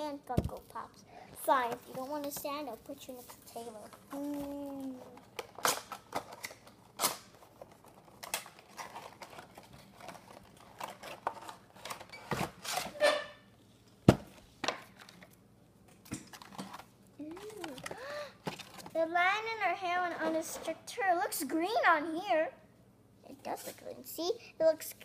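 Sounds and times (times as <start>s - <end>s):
plastic crinkling: 3.0s - 12.1s.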